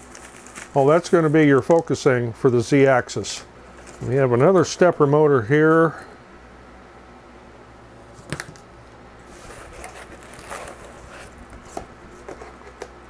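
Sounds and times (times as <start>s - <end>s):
packaging rustling and crinkling: 0.0s - 1.9s, 3.7s - 4.2s, 9.2s - 12.8s.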